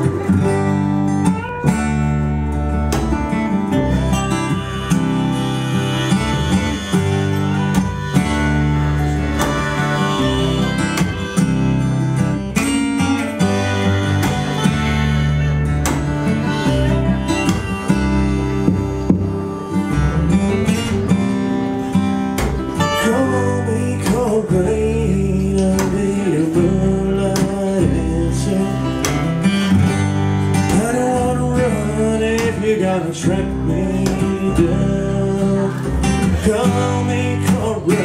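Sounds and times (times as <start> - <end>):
acoustic guitar strumming: 0.0 - 38.0
walking double bass: 0.0 - 38.0
bending gliding melody line: 3.7 - 21.8.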